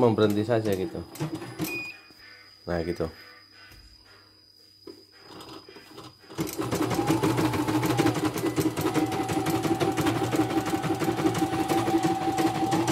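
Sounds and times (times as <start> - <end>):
embroidery machine stitching: 1.1 - 1.8, 5.3 - 12.9.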